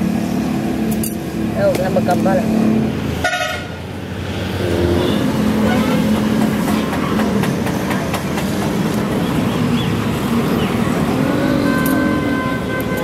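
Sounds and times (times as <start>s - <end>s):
vehicle engines running: 0.0s - 13.0s
car horn sounding: 3.2s - 3.8s, 5.0s - 6.2s, 11.5s - 13.0s.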